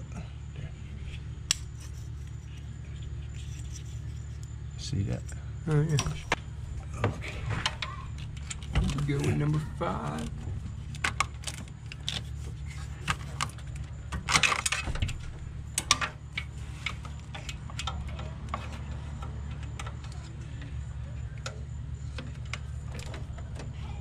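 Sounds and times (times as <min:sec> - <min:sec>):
steady low hum: 0:00.0 - 0:24.0
metal tools clinking: 0:05.2 - 0:06.4.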